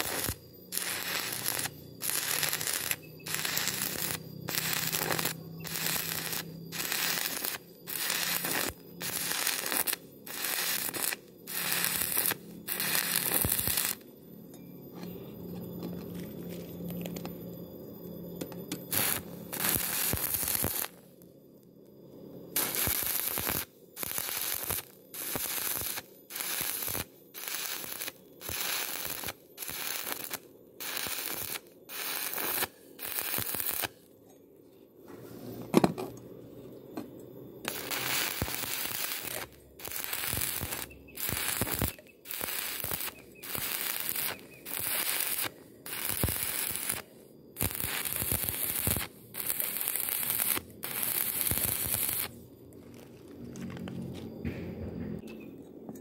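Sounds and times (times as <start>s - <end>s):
welding arc crackling: 0.0s - 14.0s, 18.7s - 21.0s, 22.6s - 34.0s, 37.6s - 53.8s.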